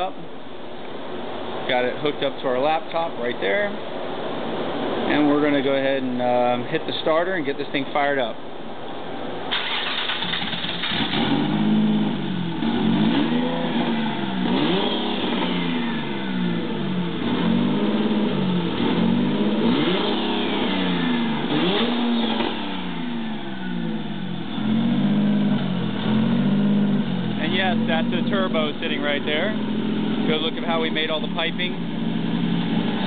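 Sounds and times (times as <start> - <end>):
car engine revving: 9.5 - 33.0.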